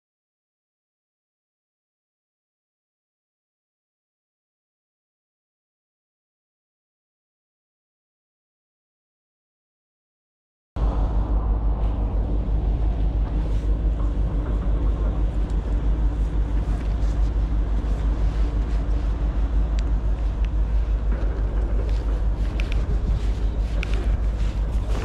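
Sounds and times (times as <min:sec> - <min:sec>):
low rumble: 0:10.8 - 0:25.0.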